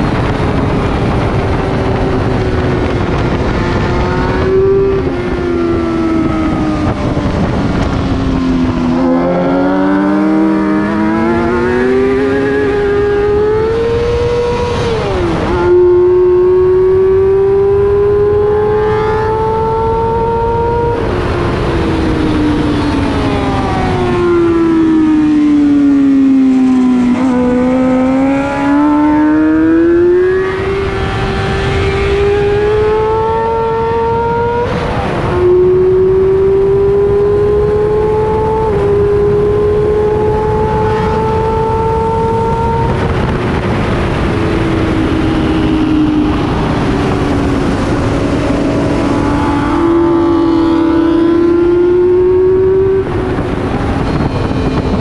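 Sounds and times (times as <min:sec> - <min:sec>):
loud wind rush: 0:00.0 - 0:55.0
motorcycle engine at high revs: 0:00.0 - 0:55.0.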